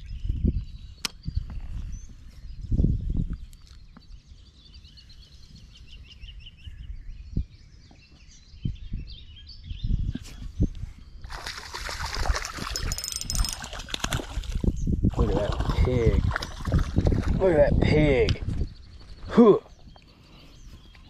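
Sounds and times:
birds chirping: 0.0 - 21.0
fishing rod handling bumps: 12.6 - 14.1.

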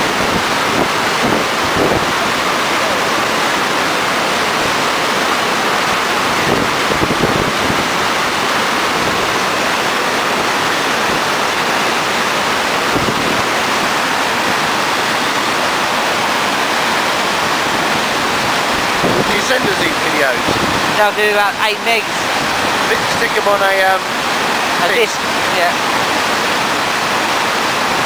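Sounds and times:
whitewater rushing over weir: 0.0 - 28.0.

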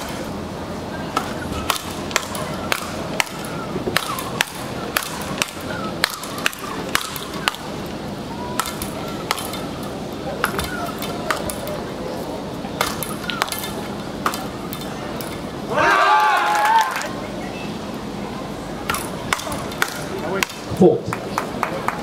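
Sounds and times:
rackets striking ball: 1.1 - 11.8, 12.7 - 15.5, 18.8 - 21.7.

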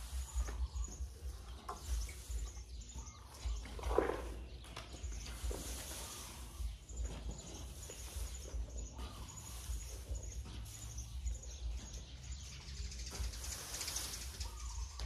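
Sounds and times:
elephant trunk rustling in bucket: 0.0 - 11.1
faint bird chirps: 0.0 - 15.0.

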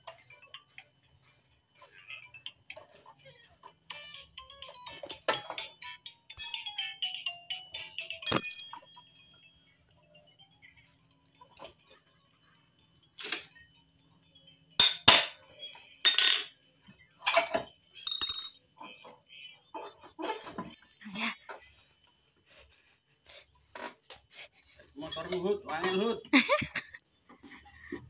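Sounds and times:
metal tools clinking: 6.4 - 6.8, 8.3 - 9.8, 16.0 - 16.6, 17.2 - 18.7, 25.0 - 26.9.

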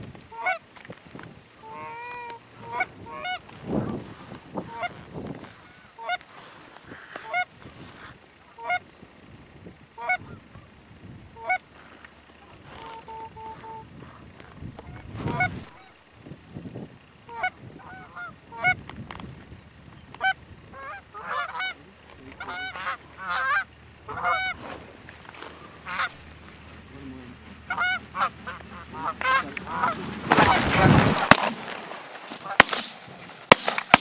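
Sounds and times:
geese honking and clucking: 0.0 - 9.0, 10.0 - 16.0, 17.2 - 34.0
loud rushing burst: 28.2 - 34.0.

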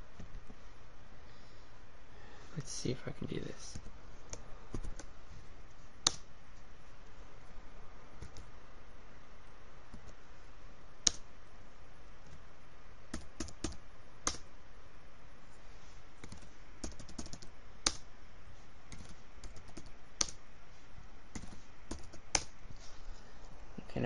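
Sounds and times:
laptop keyboard typing: 3.7 - 5.1, 8.2 - 8.5, 11.0 - 11.2, 13.1 - 14.5, 16.2 - 18.1, 18.9 - 20.4, 21.3 - 22.6.

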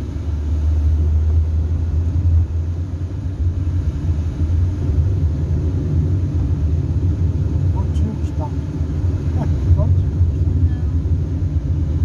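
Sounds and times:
car cabin road noise: 0.0 - 12.0.

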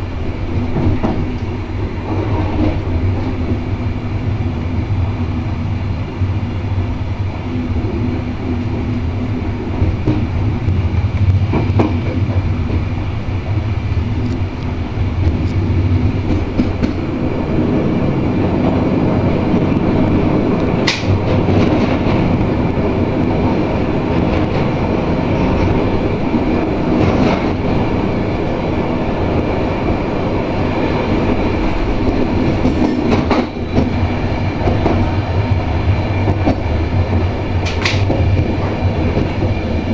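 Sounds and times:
train rumble and hum: 0.0 - 39.9
wheels clattering over rails: 31.7 - 39.9.

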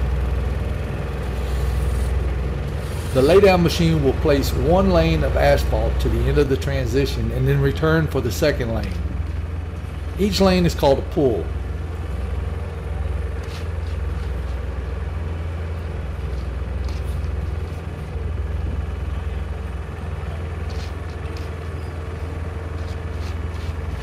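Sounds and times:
diesel engine humming: 0.0 - 24.0
rakes scraping on asphalt: 1.2 - 3.6, 13.4 - 14.8, 16.0 - 18.4, 20.6 - 24.0.

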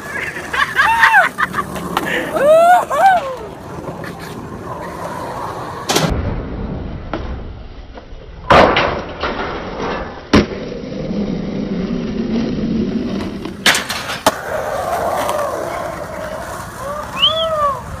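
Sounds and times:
skateboard clacking: 0.0 - 6.1, 13.1 - 18.0
skateboard wheels rolling on concrete: 0.0 - 18.0.

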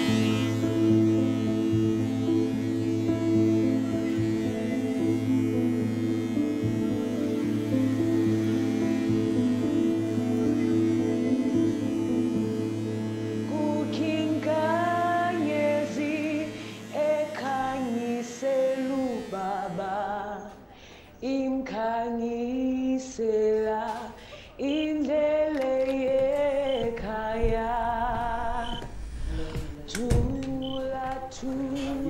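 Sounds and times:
sustained chords: 0.0 - 19.6
woman singing: 13.2 - 20.6, 21.2 - 32.0.

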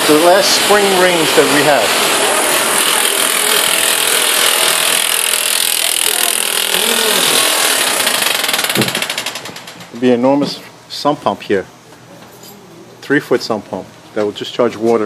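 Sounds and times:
rattling construction machine: 0.0 - 10.2.

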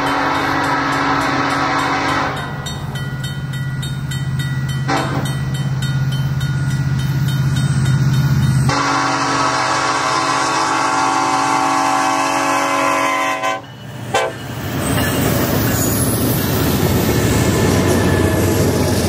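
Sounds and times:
locomotive air horn blasts: 0.0 - 2.6, 4.9 - 5.2, 8.7 - 14.4.

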